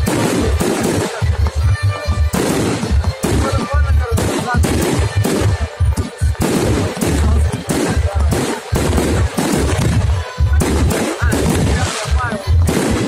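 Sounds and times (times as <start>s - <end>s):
deep fireworks booms: 0.0s - 13.0s
fireworks bangs and crackles: 0.0s - 13.0s.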